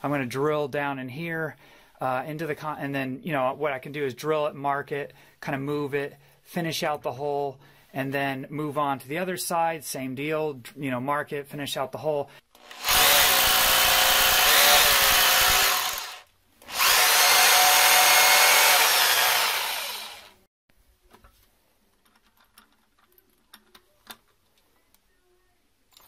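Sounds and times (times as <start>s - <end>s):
hammer drill drilling into concrete: 12.6s - 20.4s.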